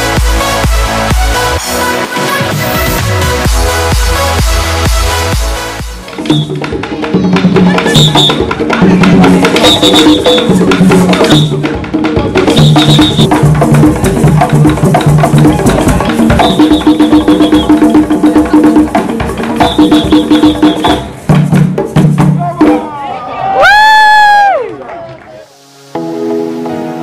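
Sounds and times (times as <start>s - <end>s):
hand drums playing fast rhythm: 3.2s - 22.9s
melody of held notes: 25.5s - 27.0s.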